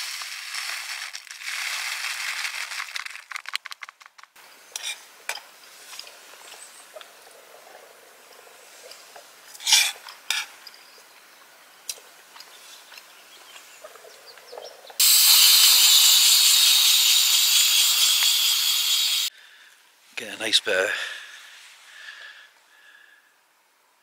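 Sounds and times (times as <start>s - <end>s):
air hissing out of valve: 15.0s - 19.3s.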